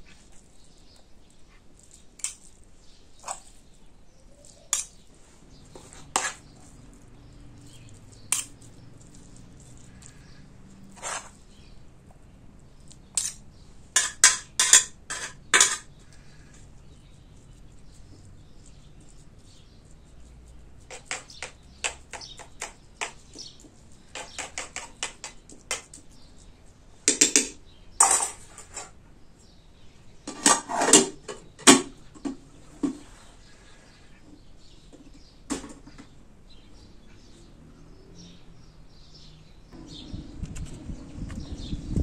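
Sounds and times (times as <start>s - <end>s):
metal spoons clinking against pots: 4.4s - 5.0s, 7.6s - 8.8s, 13.1s - 15.9s
metal pot lid clattering: 14.0s - 15.9s.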